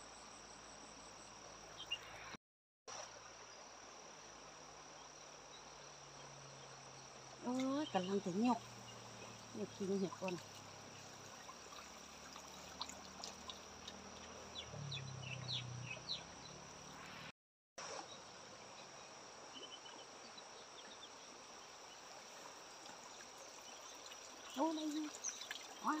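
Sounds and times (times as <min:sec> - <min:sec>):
light ticks and drips: 0:07.5 - 0:14.8, 0:22.4 - 0:26.0.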